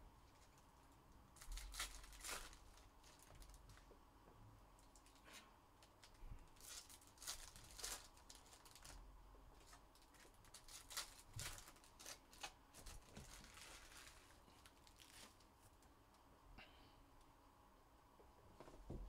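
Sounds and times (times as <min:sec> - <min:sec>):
card wrappers crinkling: 0:01.4 - 0:03.9, 0:05.8 - 0:09.0, 0:09.6 - 0:15.6.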